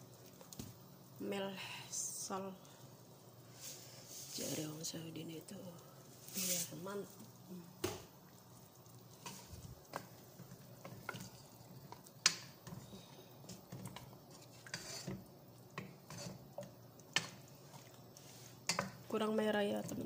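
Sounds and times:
faint sizzle of chicken: 0:00.0 - 0:20.0
spatula scraping a pot: 0:09.2 - 0:19.0.

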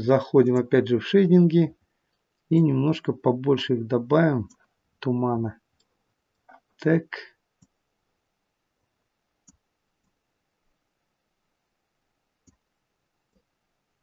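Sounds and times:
computer mouse clicks: 0:09.4 - 0:10.2.

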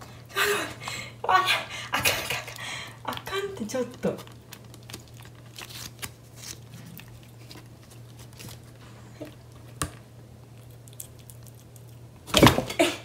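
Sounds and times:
kitten chewing and licking: 0:03.7 - 0:12.3.

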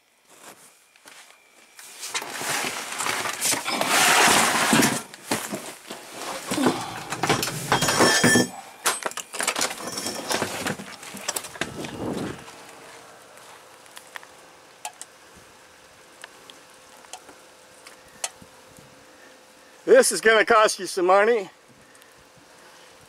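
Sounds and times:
microphone rubbing on fabric: 0:11.6 - 0:12.6.

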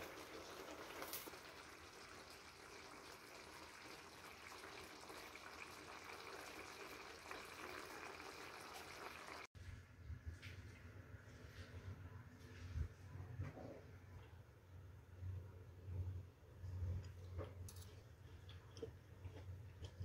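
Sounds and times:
stir-fry simmering in a wok: 0:00.0 - 0:09.5.

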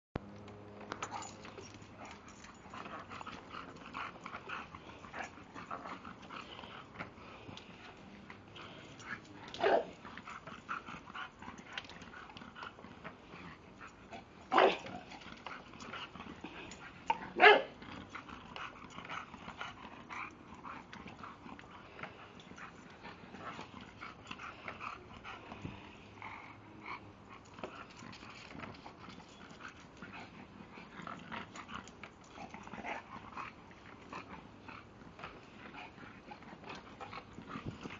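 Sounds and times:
dog making small noises: 0:09.0 - 0:10.8
dog barking: 0:09.6 - 0:09.9, 0:14.5 - 0:14.8, 0:17.4 - 0:17.7.

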